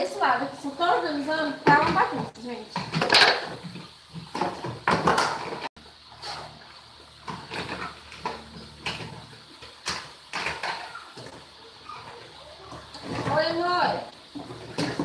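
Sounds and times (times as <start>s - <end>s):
plastic containers clattering: 1.6s - 5.7s, 12.8s - 15.0s.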